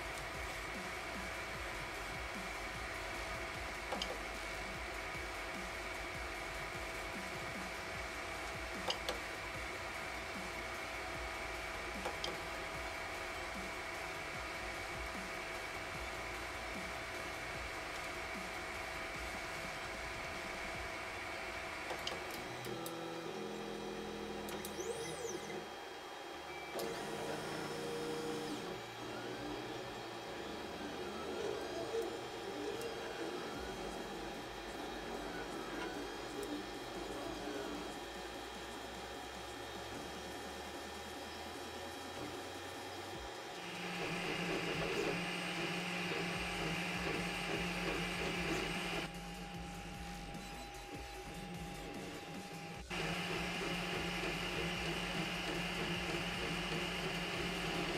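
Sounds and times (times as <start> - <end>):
cooling fan whirring: 0.0 - 57.9
stepper motors whining: 19.7 - 57.9.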